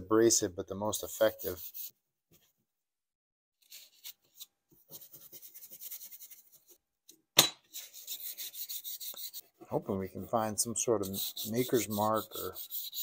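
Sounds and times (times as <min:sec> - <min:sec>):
steel wool rubbing rust off metal: 0:10.3 - 0:13.0.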